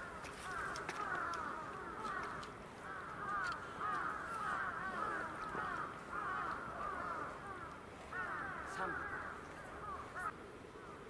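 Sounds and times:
flock of birds calling: 0:00.0 - 0:11.0.

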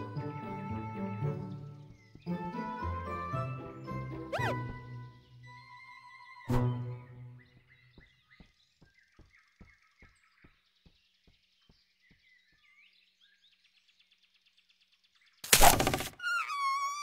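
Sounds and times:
faint bird chirps: 0:04.3 - 0:17.0.

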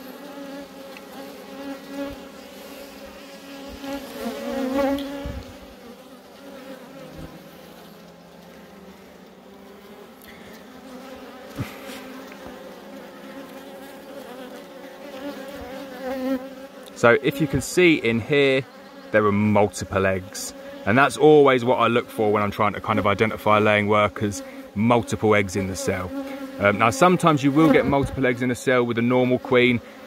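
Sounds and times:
honey bees buzzing: 0:00.0 - 0:30.0.

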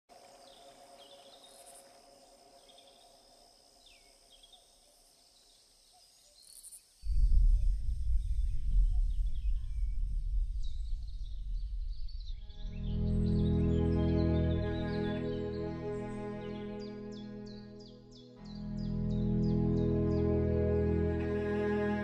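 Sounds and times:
high insect hum: 0:00.1 - 0:20.3
bird chirps: 0:03.8 - 0:20.4
loud low rumbling noise: 0:07.1 - 0:14.9.

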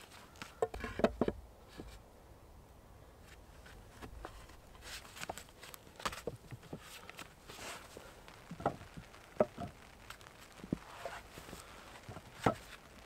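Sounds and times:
rustling: 0:00.0 - 0:02.1, 0:03.2 - 0:13.0
wooden logs knocking: 0:00.6 - 0:02.0, 0:08.5 - 0:10.9, 0:12.1 - 0:12.8.

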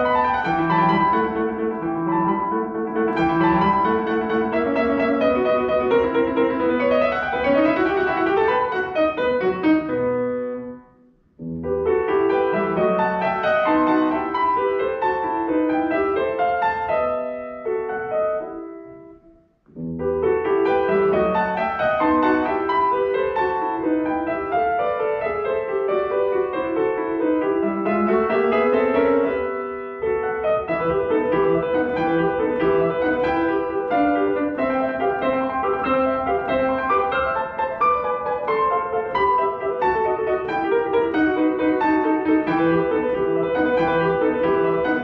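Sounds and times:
grand piano solo: 0:00.0 - 0:45.0.

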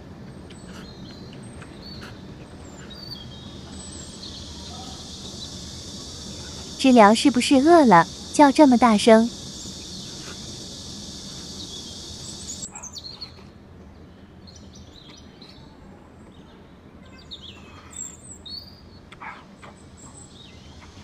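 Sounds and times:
cicadas buzzing: 0:00.5 - 0:12.9.

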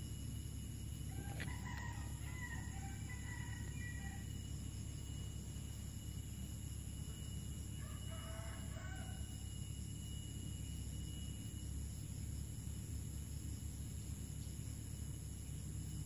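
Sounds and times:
insects droning: 0:00.0 - 0:16.0
rooster crowing faintly: 0:01.1 - 0:04.4, 0:07.8 - 0:09.5.

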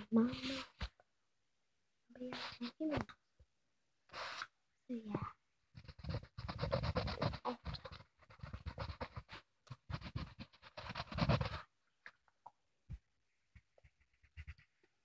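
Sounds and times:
colouring strokes scratching on paper: 0:00.0 - 0:01.0, 0:02.2 - 0:03.0, 0:04.1 - 0:04.5, 0:05.8 - 0:11.7, 0:13.6 - 0:15.0.

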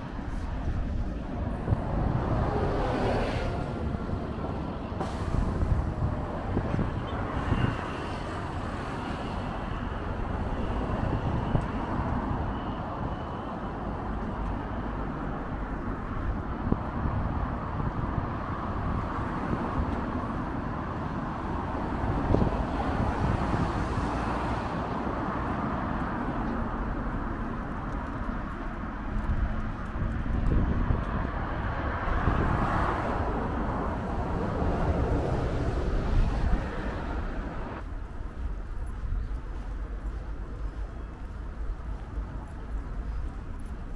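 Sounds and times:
road traffic rumble: 0:00.0 - 0:43.9.

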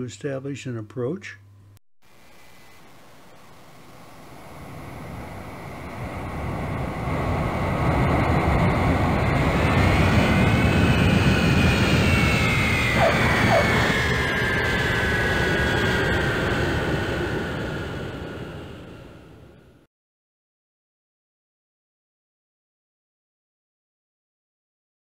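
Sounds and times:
jet aircraft passing overhead: 0:02.4 - 0:19.8.

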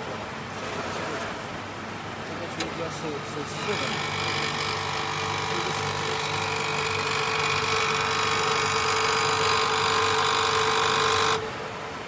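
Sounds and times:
machine mechanical whine: 0:02.4 - 0:11.5.

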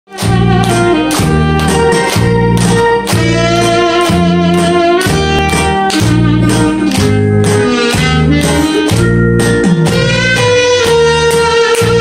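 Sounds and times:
steady beat: 0:00.1 - 0:12.0.

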